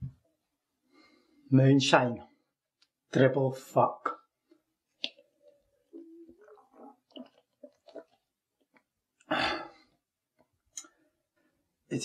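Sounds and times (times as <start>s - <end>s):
faint mouth and throat noises: 4.5s - 10.9s
man sipping from a cup: 5.0s - 10.0s.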